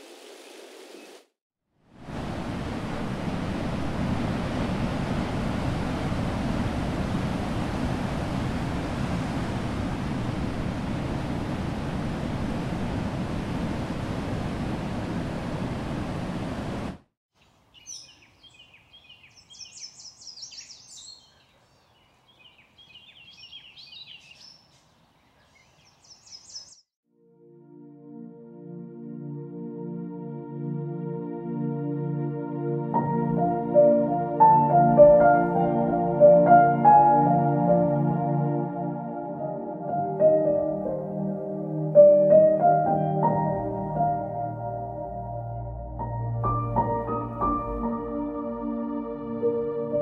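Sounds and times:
ocean surf on rocky shore: 0:02.0 - 0:17.0
songbirds chirping: 0:17.4 - 0:26.9.

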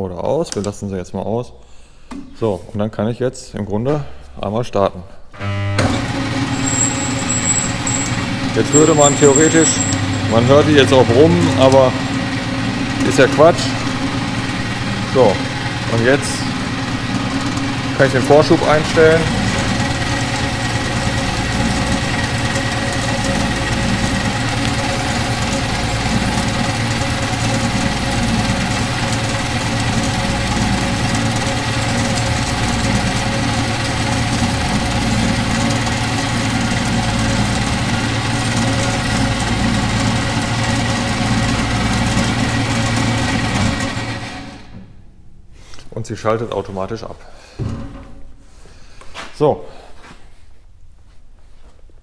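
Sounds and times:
band saw motor humming: 0:05.4 - 0:45.0.

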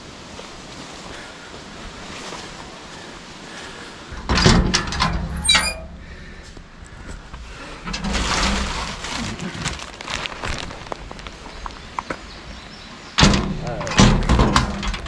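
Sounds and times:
gear and stuff sack rustling: 0:00.0 - 0:04.2, 0:06.4 - 0:13.1.

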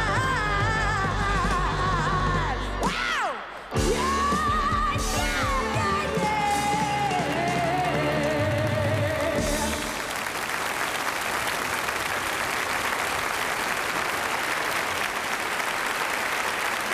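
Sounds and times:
audience applauding: 0:07.1 - 0:16.9.

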